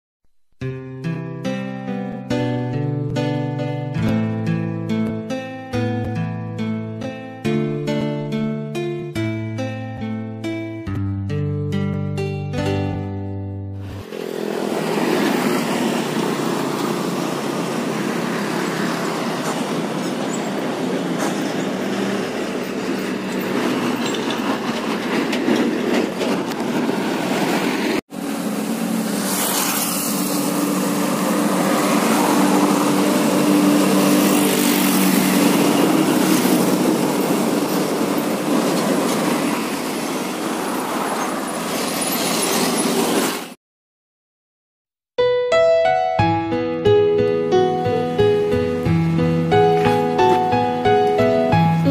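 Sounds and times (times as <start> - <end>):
diesel trucks passing: 13.8 - 43.6, 47.0 - 51.9.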